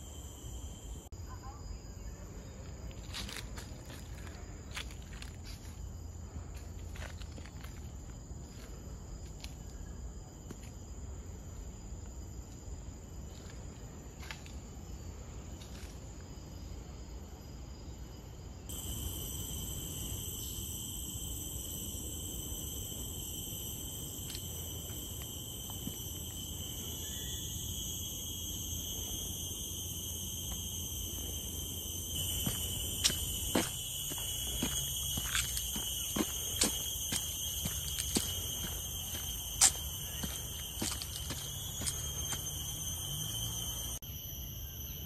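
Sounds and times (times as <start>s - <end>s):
insects droning: 0.0s - 45.0s.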